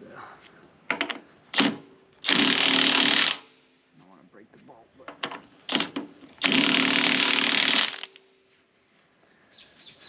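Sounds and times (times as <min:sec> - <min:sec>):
power tool driving a bolt: 0:00.9 - 0:03.5, 0:05.3 - 0:08.2.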